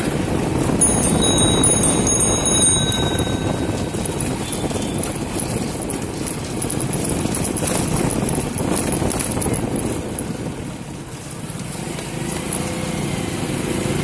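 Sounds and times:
wind on microphone: 0.0 - 11.3
motorbike rumbling: 0.0 - 14.0.

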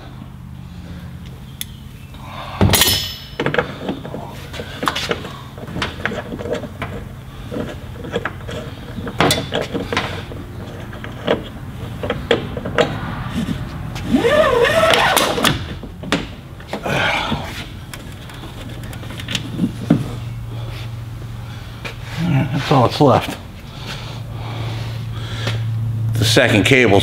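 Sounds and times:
loud ringing metal clank: 2.7 - 3.6
metal parts clanking and clicking: 2.7 - 13.0.

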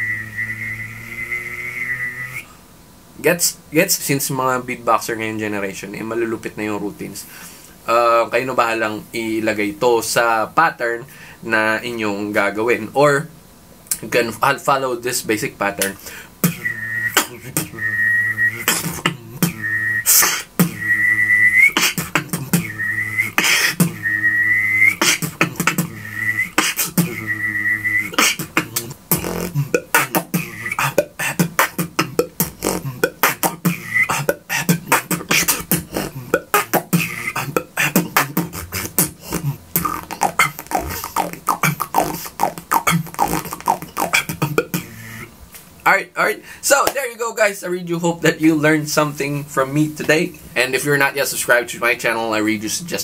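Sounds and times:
mouth whistle with hummed note: 0.0 - 2.6, 15.8 - 45.3
beatbox kick and snare: 15.8 - 45.0, 46.8 - 47.0.

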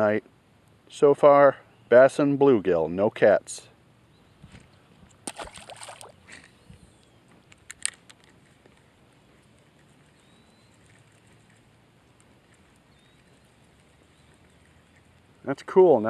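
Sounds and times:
fish splashing in water: 5.2 - 6.4.

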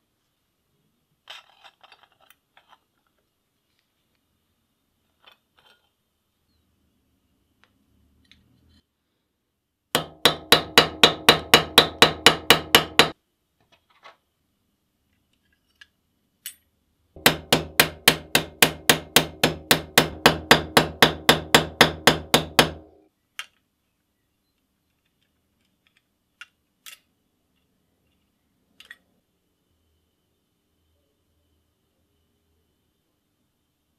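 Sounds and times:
small hammer tapping metal: 10.0 - 13.2, 17.2 - 22.9.

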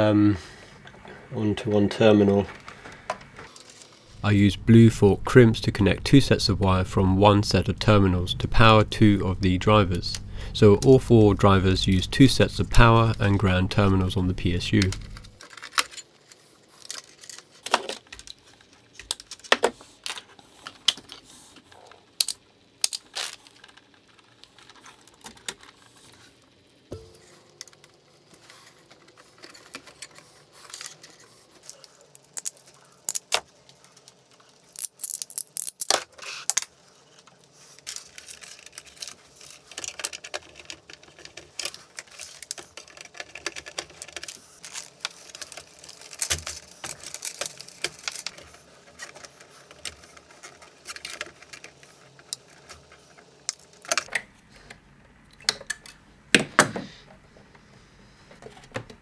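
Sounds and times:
wires and terminals clicking: 4.4 - 16.0.

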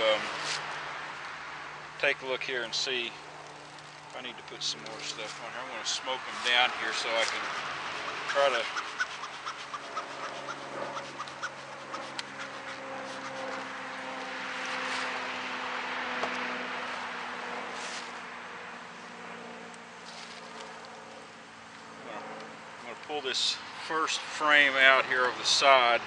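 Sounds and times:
bees humming: 3.9 - 15.4
bellows smoker puffing: 7.3 - 13.6.

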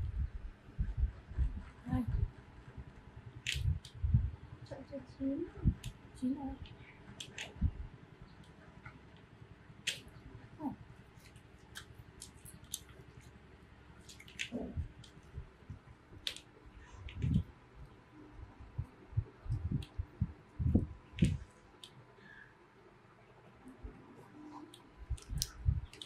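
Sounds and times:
soft low thumps: 0.0 - 6.8, 18.4 - 21.4.

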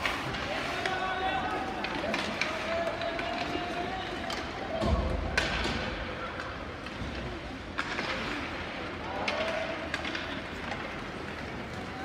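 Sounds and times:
hockey stick clack: 0.0 - 11.9.

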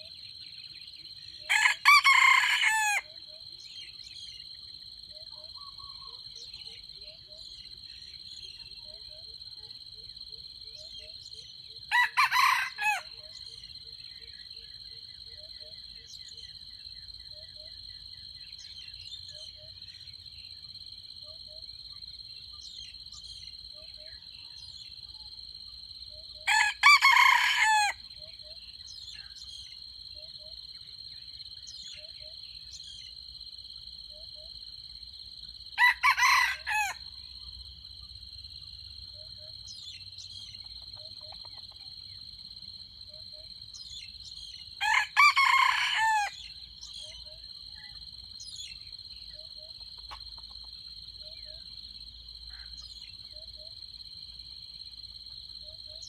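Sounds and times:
rooster crowing: 1.5 - 3.1, 11.9 - 13.2, 26.4 - 28.0, 35.8 - 37.1, 44.8 - 46.5.

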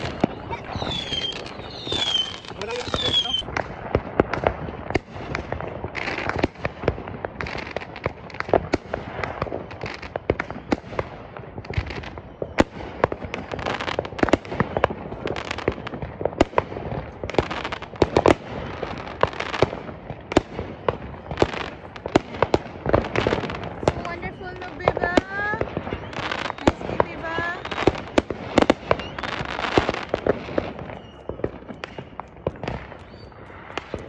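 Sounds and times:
fireworks bangs and crackles: 0.0 - 34.0.

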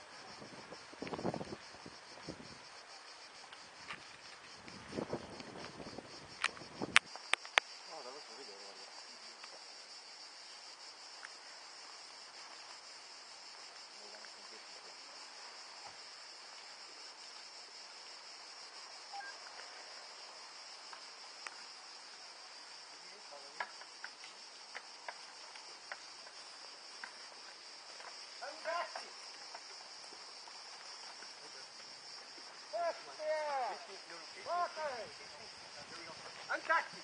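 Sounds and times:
cicadas shrilling: 0.0 - 37.0.

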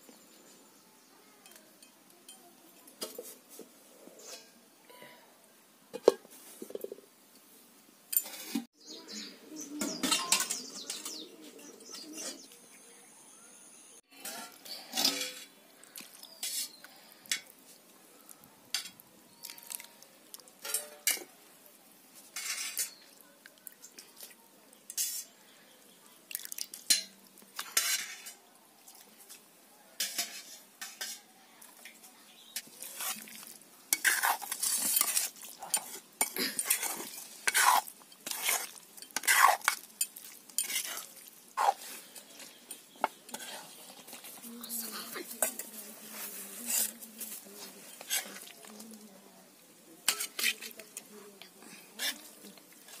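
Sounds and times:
ladle clinking against metal pots: 9.8 - 11.2, 20.6 - 21.3, 50.1 - 50.6.

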